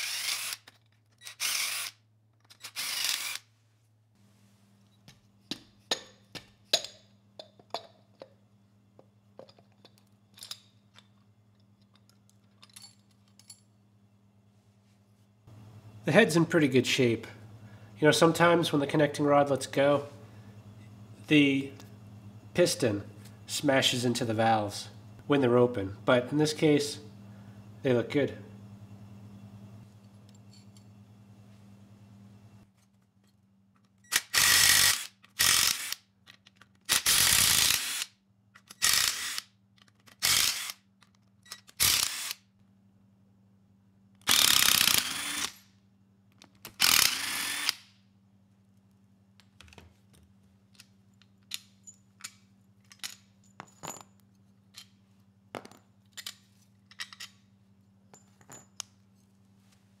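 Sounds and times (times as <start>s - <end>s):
cordless power tool bursts: 0.0s - 0.6s, 1.3s - 2.0s, 2.6s - 3.4s, 36.9s - 38.1s, 44.3s - 45.5s, 46.8s - 47.8s.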